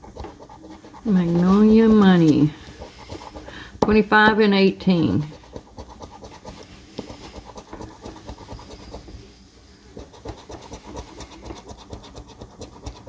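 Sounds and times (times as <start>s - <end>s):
coin scratching lottery ticket: 0.1s - 3.5s, 5.2s - 9.2s, 10.0s - 13.0s.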